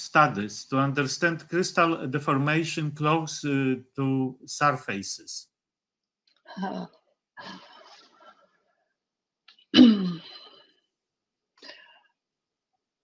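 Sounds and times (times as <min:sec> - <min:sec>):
person making vocal sounds: 0:00.0 - 0:05.4.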